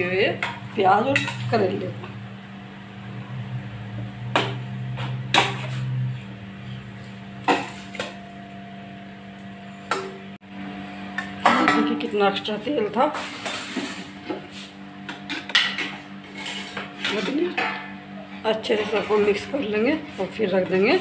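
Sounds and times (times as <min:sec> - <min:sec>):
low hum: 0:00.0 - 0:12.8
metal spoon scraping an iron pan: 0:00.4 - 0:01.8, 0:05.0 - 0:06.2, 0:13.1 - 0:14.2, 0:15.2 - 0:17.9, 0:18.6 - 0:21.0.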